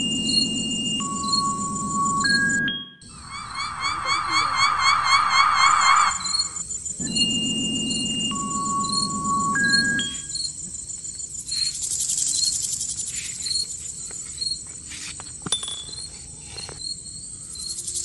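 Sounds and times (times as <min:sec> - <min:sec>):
low drone: 0:00.0 - 0:10.4
insects chirping: 0:03.0 - 0:18.0
chiming music notes: 0:07.0 - 0:10.4.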